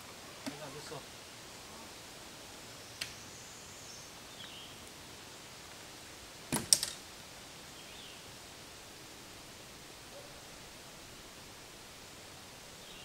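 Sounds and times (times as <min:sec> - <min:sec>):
camp cot frame clicking: 0:06.5 - 0:07.0.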